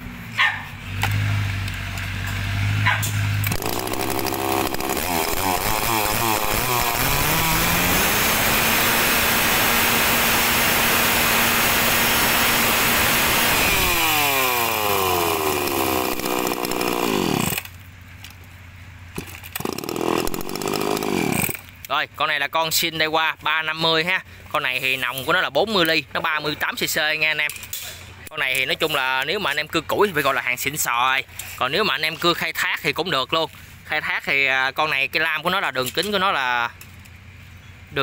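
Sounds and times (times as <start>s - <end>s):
chainsaw revving: 0.9s - 17.8s, 19.2s - 21.7s.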